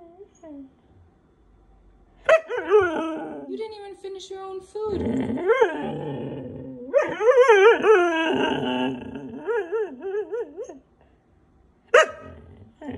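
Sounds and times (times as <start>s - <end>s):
dog moaning vocally: 2.5s - 3.5s, 4.9s - 10.8s, 12.2s - 12.9s.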